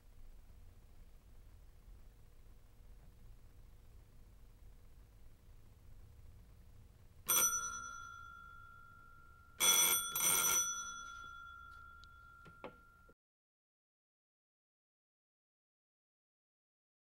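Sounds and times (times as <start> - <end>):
electric alarm bell ringing: 7.3 - 13.2.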